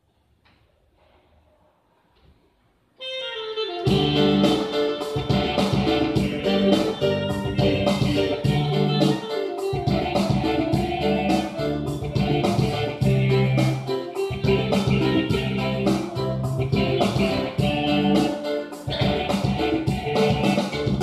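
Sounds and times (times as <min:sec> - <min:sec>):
electronic keyboard music with beat: 0:03.6 - 0:21.0.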